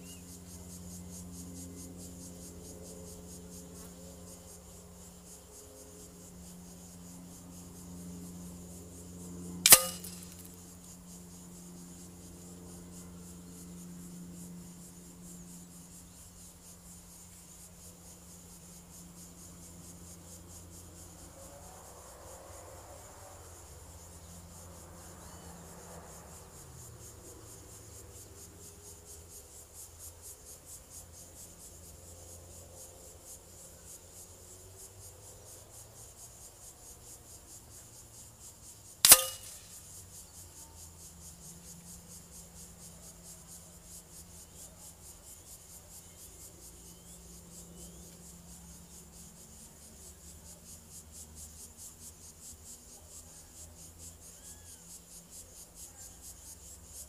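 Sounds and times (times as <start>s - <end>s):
crickets chirping: 0.0s - 57.0s
pellet smacking target: 9.7s - 10.5s, 39.0s - 39.8s.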